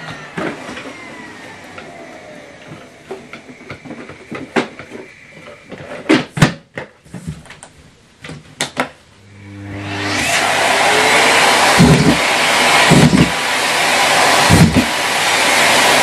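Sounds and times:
vacuum cleaner motor running: 0:00.0 - 0:05.9, 0:09.2 - 0:16.0.

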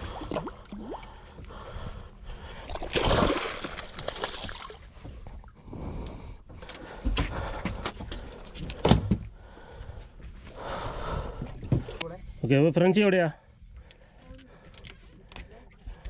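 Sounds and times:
fish splashing in water: 0:02.7 - 0:04.9.

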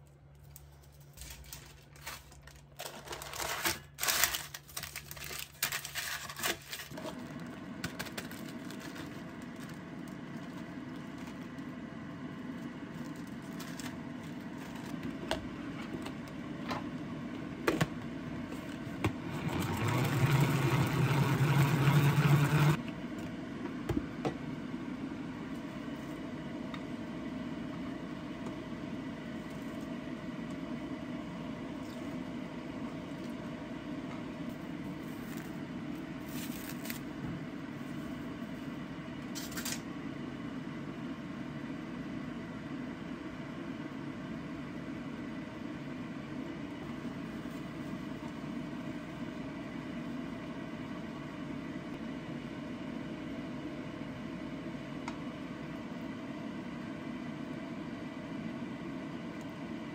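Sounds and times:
steady low hum: 0:06.9 - 0:59.9
salad spinner whirring: 0:19.0 - 0:22.8.

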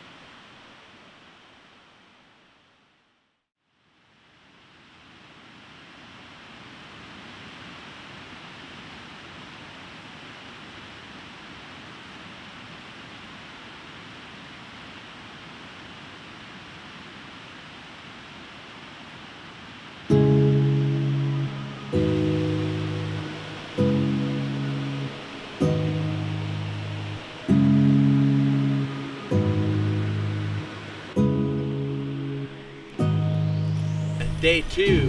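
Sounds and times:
river rushing over rapids: 0:04.1 - 0:35.0
strummed acoustic guitar chord: 0:20.1 - 0:35.0.

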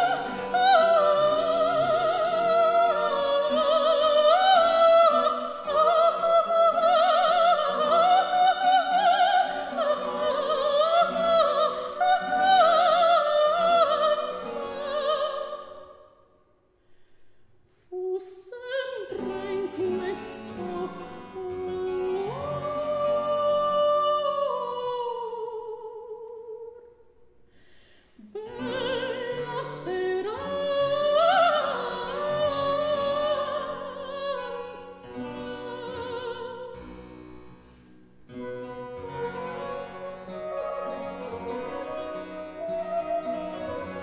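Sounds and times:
woman singing opera aria: 0:00.0 - 0:16.1, 0:17.9 - 0:26.9, 0:28.2 - 0:36.8, 0:38.5 - 0:44.0
baroque ensemble playing: 0:38.5 - 0:44.0.

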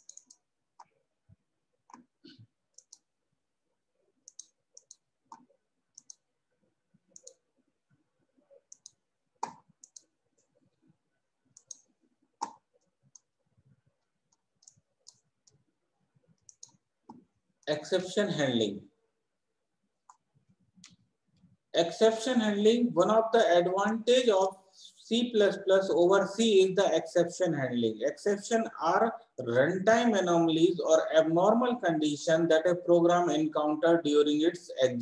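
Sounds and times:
computer mouse clicks: 0:00.0 - 0:01.0, 0:01.8 - 0:03.1, 0:04.2 - 0:06.3, 0:07.1 - 0:07.4, 0:08.6 - 0:10.6, 0:11.5 - 0:13.3, 0:14.3 - 0:15.6, 0:16.3 - 0:17.3, 0:20.0 - 0:21.5.

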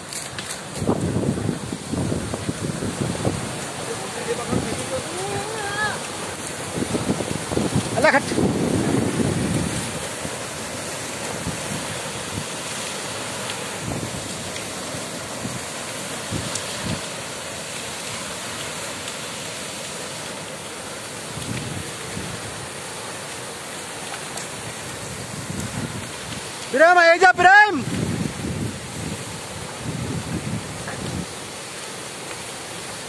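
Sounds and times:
water jetting with rushing hiss: 0:00.0 - 0:33.0
wind buffeting microphone: 0:00.7 - 0:12.6, 0:27.8 - 0:31.4.

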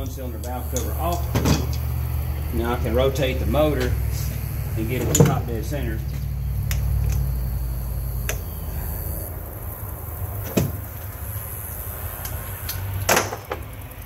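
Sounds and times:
tools and metal parts clicking: 0:00.0 - 0:01.9.

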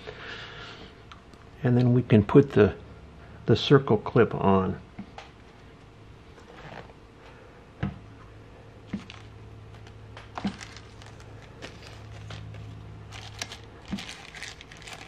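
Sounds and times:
low steady hum: 0:00.0 - 0:15.0
plastic bags crinkling: 0:08.9 - 0:15.0.

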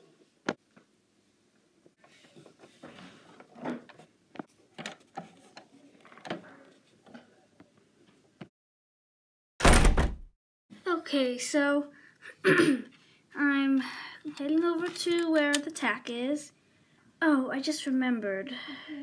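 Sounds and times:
plastic toys clicking and rubbing: 0:14.2 - 0:15.9.

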